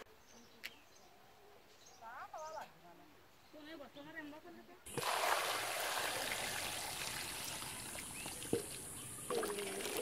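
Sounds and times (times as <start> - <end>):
water pouring into steel bowl: 4.9 - 10.0.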